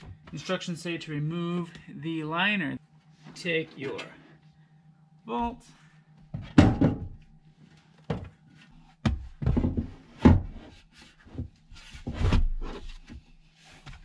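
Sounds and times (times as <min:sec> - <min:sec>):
heavy safe knocks and thuds: 0:06.4 - 0:07.2.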